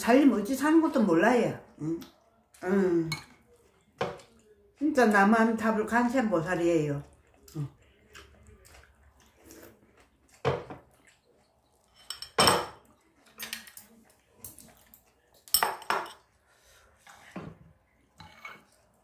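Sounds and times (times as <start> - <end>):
metal spoon clinking ceramic bowls: 11.9 - 12.8.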